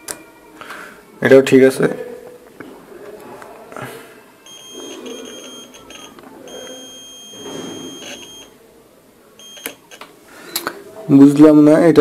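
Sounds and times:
multimeter continuity buzzer beeping: 0:04.5 - 0:08.6, 0:09.4 - 0:10.0.

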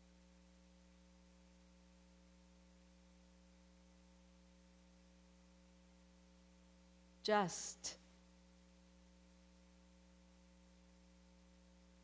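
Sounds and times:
low electrical mains hum: 0:00.0 - 0:12.0.

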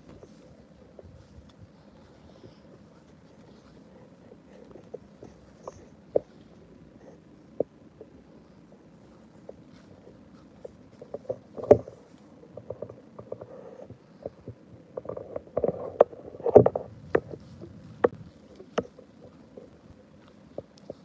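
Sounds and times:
soft squelches: 0:00.0 - 0:21.0
wet rustling through grass: 0:16.3 - 0:21.0.

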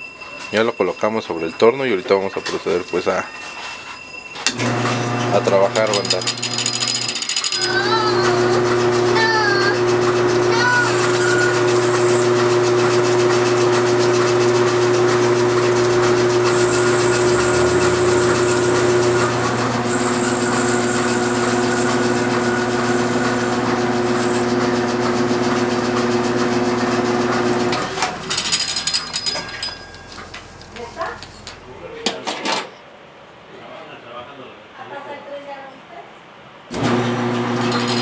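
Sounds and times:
metal lathe running: 0:04.4 - 0:31.6, 0:36.8 - 0:38.0.

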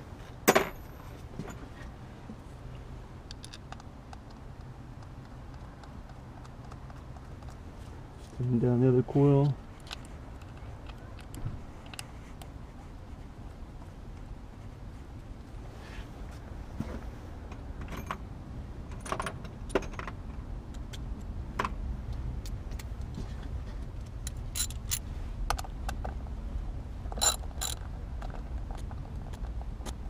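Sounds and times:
low steady rumble: 0:00.0 - 0:30.0
metal tools clinking: 0:00.5 - 0:01.7, 0:24.3 - 0:25.0, 0:27.2 - 0:27.8.

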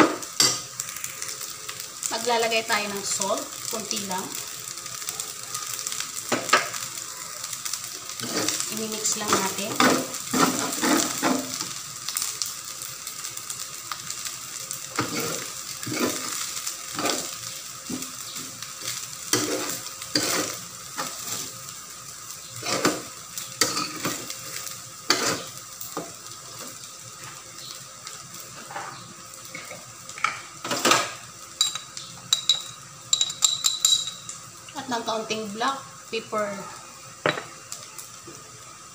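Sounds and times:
rice sizzling in a pan: 0:00.0 - 0:38.9
metal spatula scraping a pan: 0:09.3 - 0:11.5, 0:19.3 - 0:21.5, 0:25.1 - 0:25.5.

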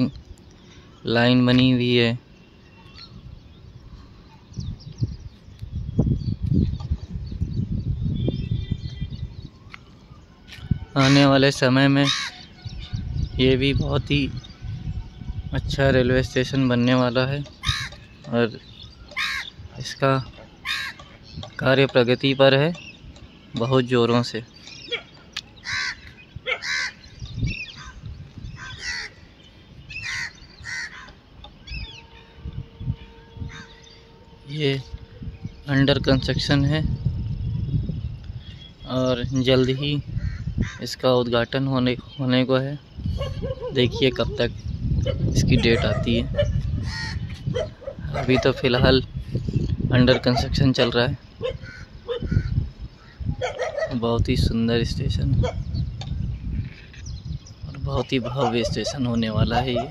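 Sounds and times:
birds chirping: 0:00.0 - 0:59.9
low rumbling buffeting: 0:00.0 - 0:59.9
crows cawing: 0:12.0 - 0:12.5, 0:17.6 - 0:18.1, 0:19.1 - 0:19.6, 0:20.6 - 0:21.2, 0:25.6 - 0:27.1, 0:27.7 - 0:29.3, 0:29.9 - 0:31.2, 0:33.5 - 0:33.9, 0:40.2 - 0:40.9, 0:46.8 - 0:47.9, 0:51.4 - 0:53.2
steady humming tone: 0:31.2 - 0:38.5.

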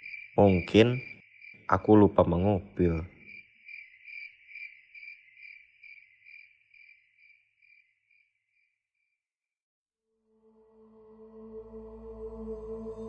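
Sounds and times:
cricket chirping: 0:00.0 - 0:09.2.

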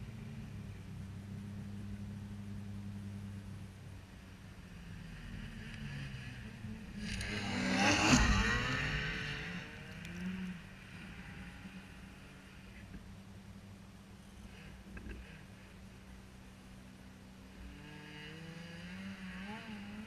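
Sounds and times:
engine idling low: 0:00.0 - 0:07.4, 0:08.2 - 0:17.8
snowmobile engine revving: 0:05.6 - 0:11.8.

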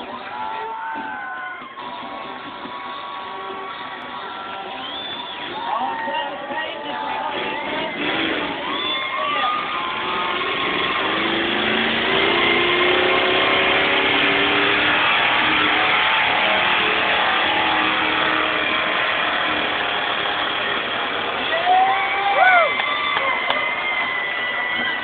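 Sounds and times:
truck engine revving hard: 0:07.0 - 0:25.0.

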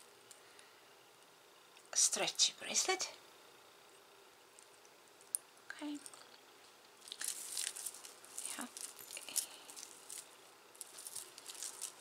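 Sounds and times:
beaded necklaces and chains clinking: 0:07.0 - 0:12.0.

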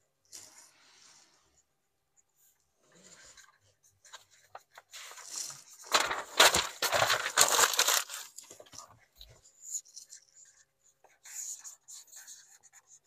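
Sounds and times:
paper rustling: 0:03.1 - 0:10.6
marker scribbling on paper: 0:09.5 - 0:13.0.

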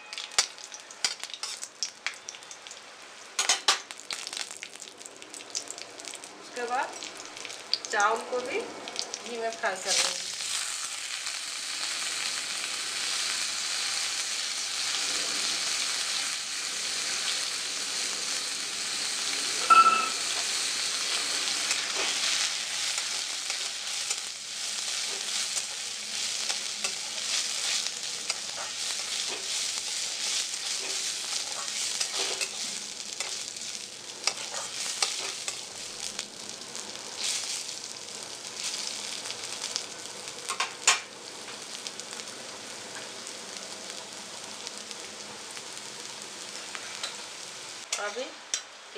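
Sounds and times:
metal spatula scraping a pan: 0:00.0 - 0:01.6, 0:26.4 - 0:33.4, 0:34.2 - 0:35.6
rice sizzling in hot fat: 0:00.0 - 0:48.9
high-pitched ring: 0:19.6 - 0:20.3.

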